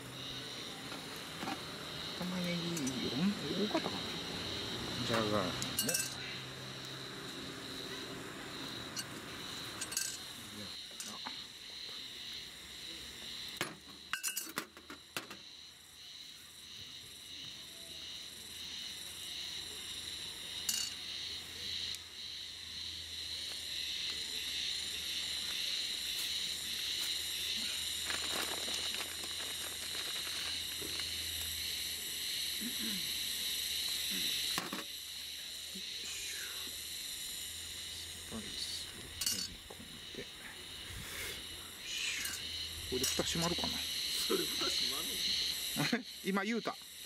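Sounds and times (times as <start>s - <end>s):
glass bottle clinking on metal table: 5.8s - 6.2s, 9.8s - 10.2s, 13.6s - 14.7s, 20.7s - 21.0s, 39.2s - 39.6s.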